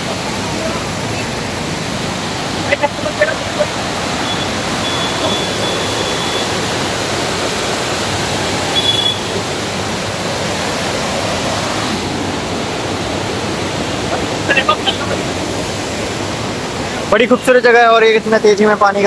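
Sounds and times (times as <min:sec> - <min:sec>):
river water rushing: 0:00.0 - 0:18.4.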